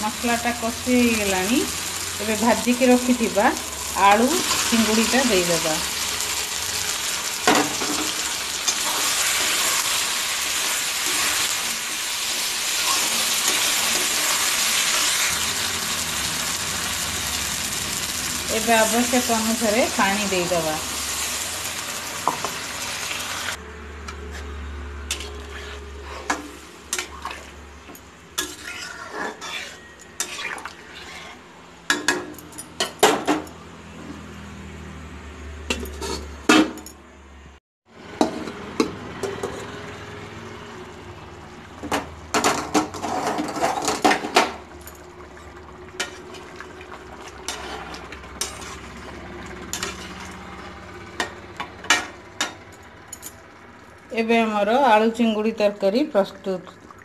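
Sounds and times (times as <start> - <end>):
metal spatula scraping pan: 24.1 - 27.6, 28.4 - 31.5, 47.3 - 50.7.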